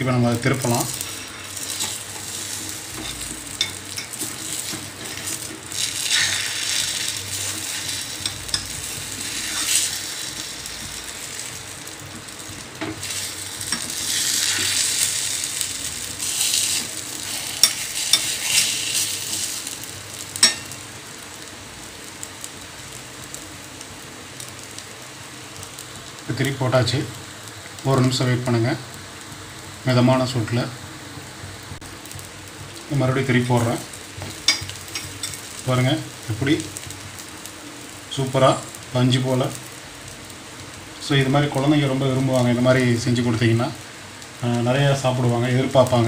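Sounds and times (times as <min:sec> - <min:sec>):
omelette sizzling in oil: 0:00.0 - 0:46.0.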